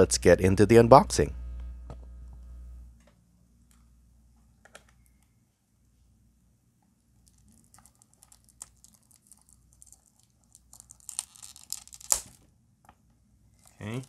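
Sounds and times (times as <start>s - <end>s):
plastic shrink-wrap crinkling: 7.2s - 12.4s, 13.6s - 14.0s.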